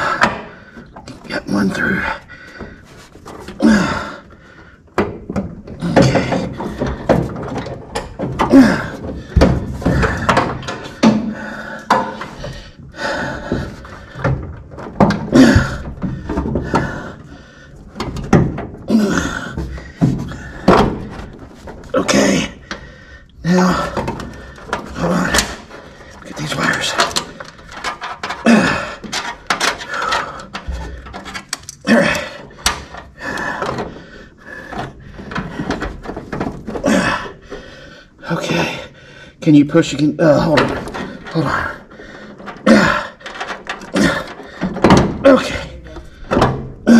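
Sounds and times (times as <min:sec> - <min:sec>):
plastic parts creaking: 0:00.0 - 0:38.8, 0:39.5 - 0:46.9
scraping and rustling: 0:02.5 - 0:03.6
knocks and thunks: 0:05.0 - 0:23.0, 0:40.4 - 0:46.9.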